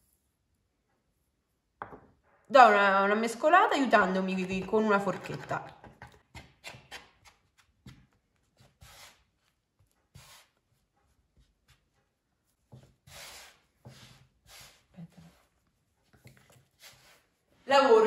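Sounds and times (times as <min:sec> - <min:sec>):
hands kneading dough on board: 0:04.3 - 0:17.4.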